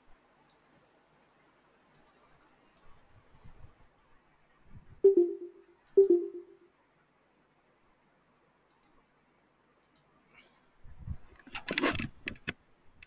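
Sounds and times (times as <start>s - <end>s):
computer mouse clicks: 0.5s - 0.7s, 1.9s - 2.9s, 8.7s - 9.0s, 9.8s - 10.2s.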